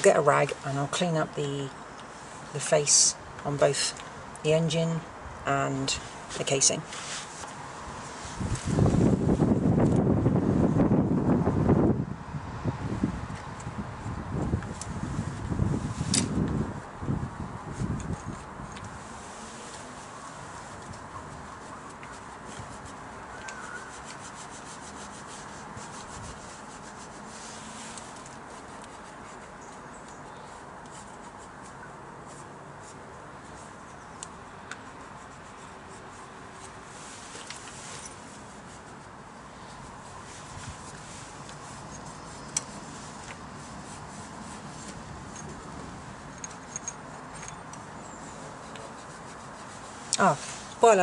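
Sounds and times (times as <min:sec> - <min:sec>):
cloth rag rubbing metal: 0:06.0 - 0:09.2, 0:17.7 - 0:29.8, 0:34.8 - 0:45.4, 0:48.2 - 0:51.0.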